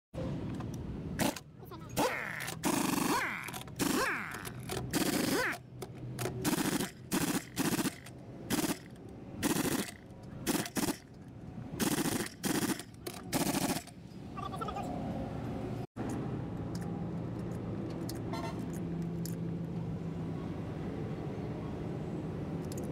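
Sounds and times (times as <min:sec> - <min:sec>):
pneumatic impact wrench rattling: 0:01.2 - 0:11.2, 0:11.8 - 0:14.0.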